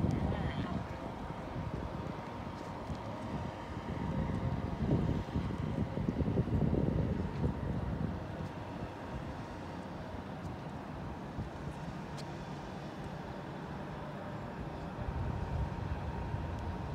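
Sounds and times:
outdoor background noise: 0:00.0 - 0:16.9.

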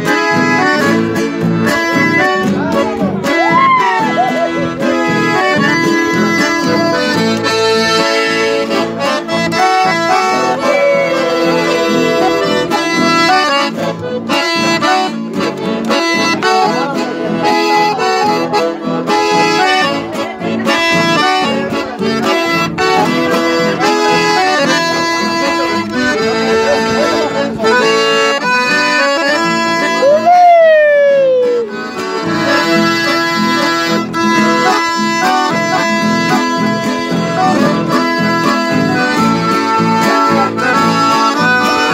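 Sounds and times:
piano accordion tune: 0:00.0 - 0:30.3, 0:31.4 - 0:41.9
strummed guitar: 0:00.0 - 0:41.9
loud cry: 0:03.3 - 0:04.6, 0:30.0 - 0:31.7.

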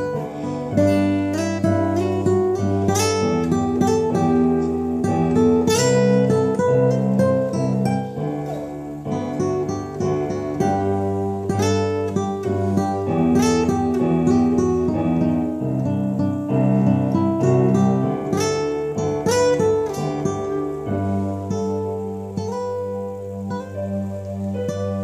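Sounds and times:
fingerstyle acoustic guitar: 0:00.0 - 0:25.0.

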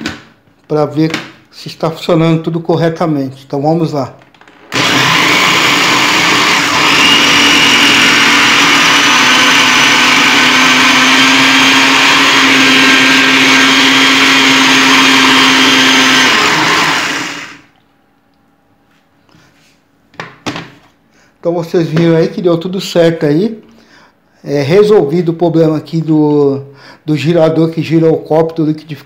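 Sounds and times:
blender motor whine: 0:04.7 - 0:17.8.

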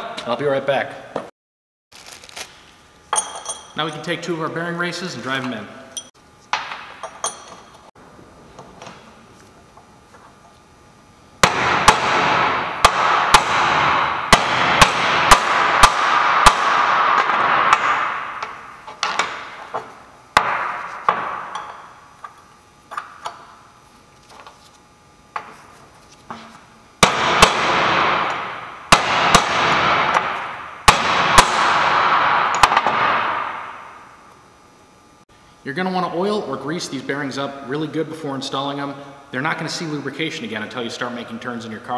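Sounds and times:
hammer striking metal: 0:11.4 - 0:22.0, 0:27.0 - 0:34.0.

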